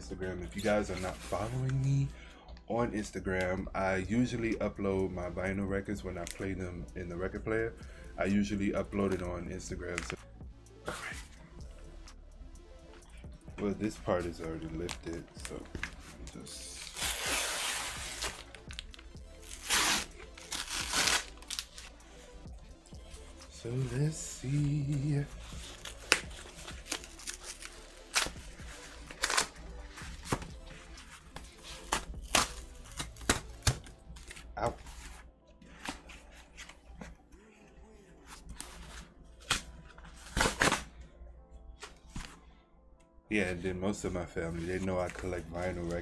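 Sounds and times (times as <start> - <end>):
quiet background music: 0.0 - 46.0
cardboard ripping: 19.4 - 21.8, 29.0 - 29.5.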